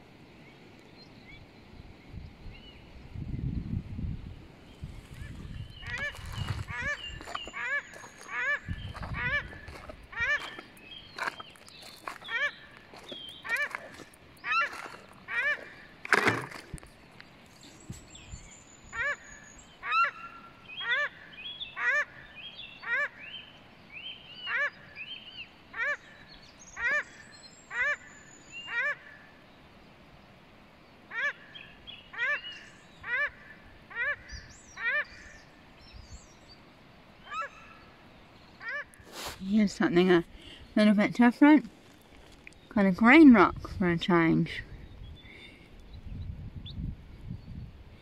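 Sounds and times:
thin high bird calls: 4.8 - 29.2, 37.2 - 39.5
ducks honking calls: 5.2 - 16.6, 21.8 - 22.2, 32.2 - 35.2, 38.6 - 39.3.

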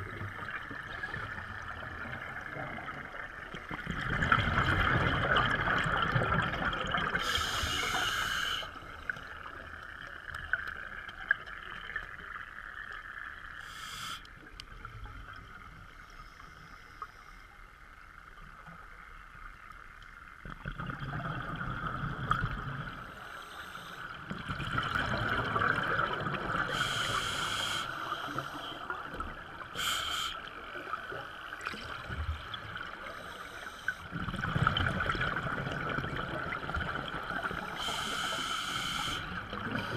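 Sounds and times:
bubbles gurgling underwater: 0.0 - 7.3, 20.4 - 23.1, 24.2 - 26.9, 34.1 - 37.9
steady hiss: 7.2 - 9.6, 13.6 - 14.4, 23.1 - 24.2, 26.6 - 29.0, 29.7 - 31.6, 33.0 - 34.1, 37.4 - 39.9.

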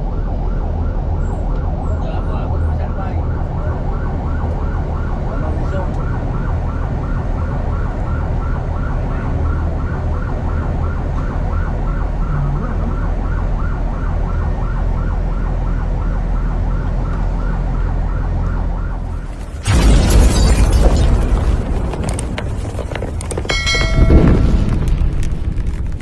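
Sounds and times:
electronic yelp siren: 0.0 - 19.8
vehicle rumble: 0.0 - 26.0.

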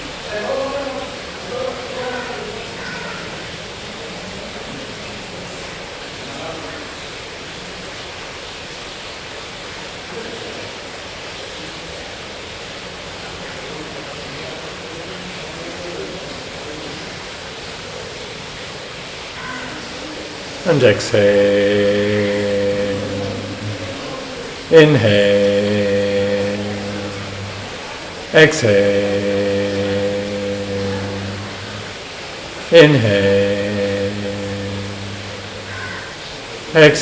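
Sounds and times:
steady background hiss: 0.0 - 37.0
faint distant voices: 19.4 - 37.0.

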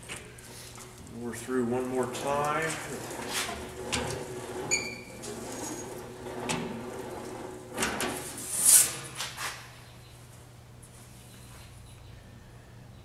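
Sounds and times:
sheet metal rattling and flexing: 2.0 - 9.2.

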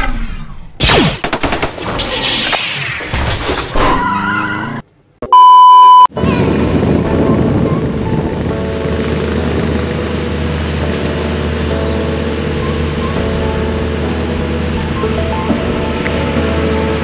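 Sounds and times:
test-tone beep: 5.3 - 6.1
boat under way: 6.3 - 17.0.

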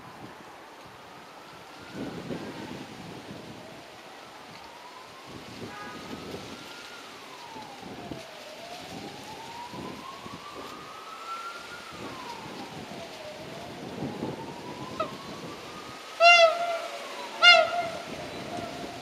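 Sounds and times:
siren wailing: 1.2 - 19.0.

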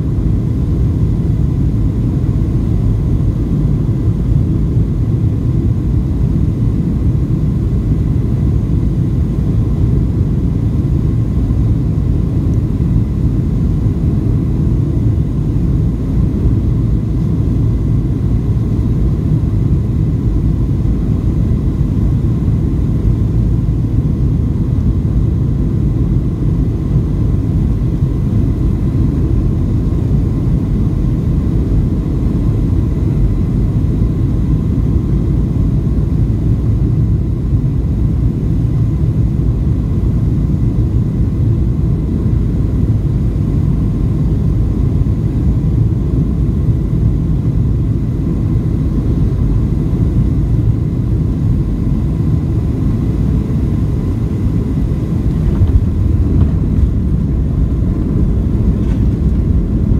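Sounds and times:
airplane cabin engine rumble: 0.0 - 59.9
faint high whine: 0.0 - 59.9
rushing air: 55.0 - 59.9.

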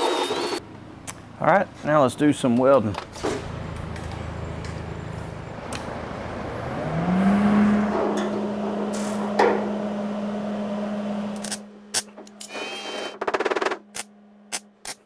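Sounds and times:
electric motor whining: 0.0 - 0.6.

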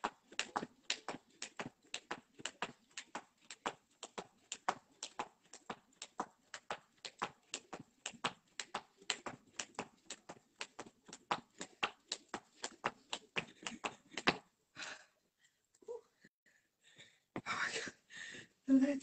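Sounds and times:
skipping rope slapping paving: 0.0 - 14.4.

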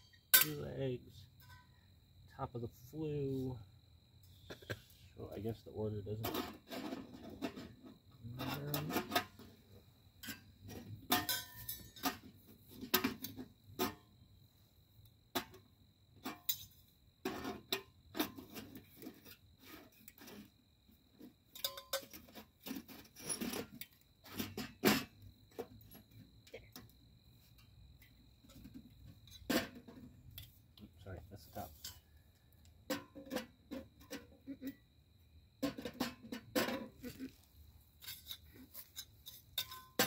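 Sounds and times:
metal parts clinking and knocking: 21.5 - 26.1.

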